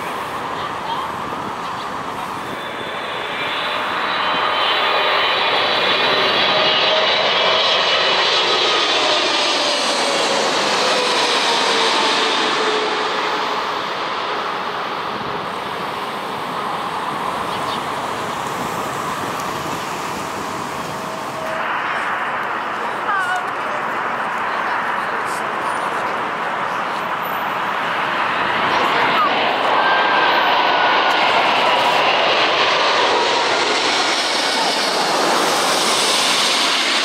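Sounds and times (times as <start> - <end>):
high engine whine: 0.0 - 37.0
jet airliner passing overhead: 0.0 - 37.0.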